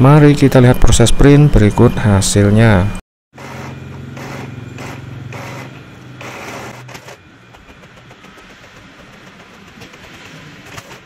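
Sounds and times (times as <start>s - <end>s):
mechanical clicking and whirring: 3.4s - 11.0s
printer motor hum: 3.4s - 11.0s.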